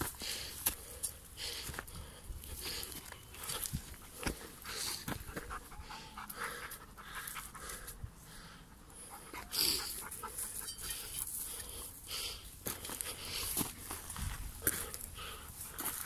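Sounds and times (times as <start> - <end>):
dog panting: 3.4 - 12.3.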